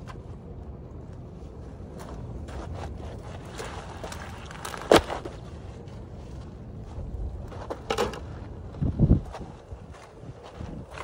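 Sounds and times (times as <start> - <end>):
wind on microphone: 8.6 - 11.0.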